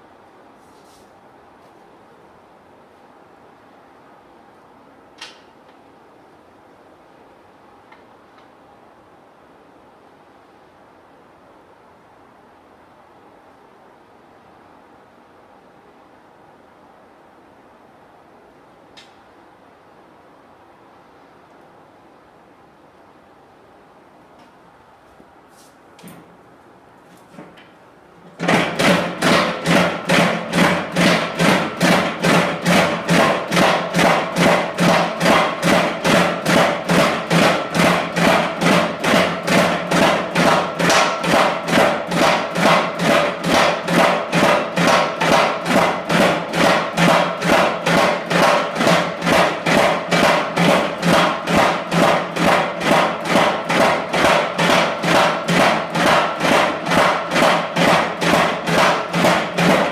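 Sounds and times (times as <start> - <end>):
power hammer pounding steel: 28.3 - 59.9.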